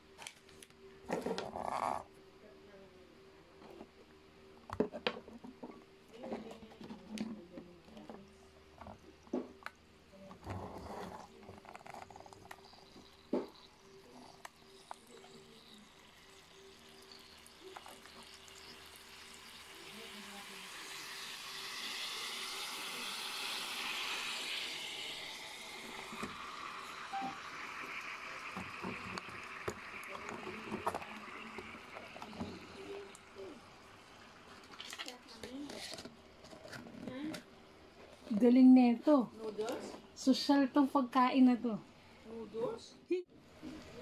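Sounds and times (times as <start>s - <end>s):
heating pack fizzing and bubbling: 10.2s - 37.5s.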